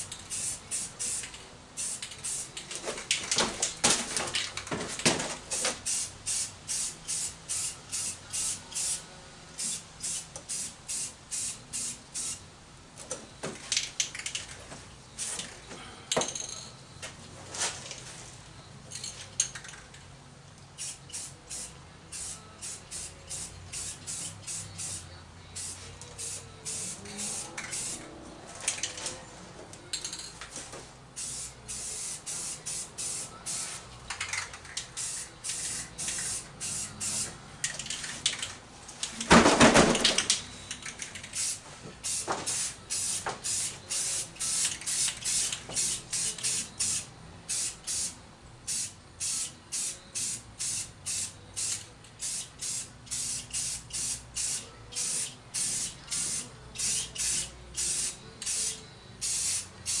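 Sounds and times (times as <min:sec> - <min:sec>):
spray paint can hissing: 0:00.0 - 0:02.6, 0:05.6 - 0:09.0, 0:09.6 - 0:12.4, 0:20.8 - 0:28.0, 0:31.2 - 0:38.5, 0:40.1 - 1:00.0.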